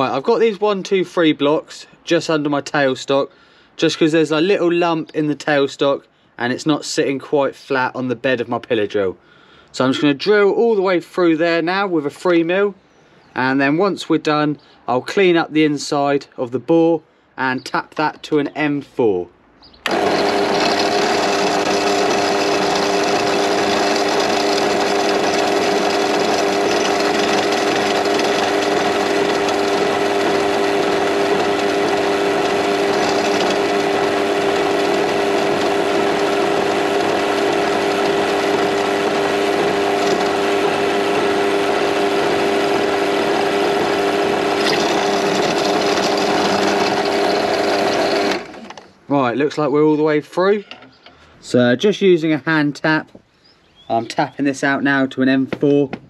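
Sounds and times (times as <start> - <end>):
pillar drill drilling into metal: 19.8 - 48.9.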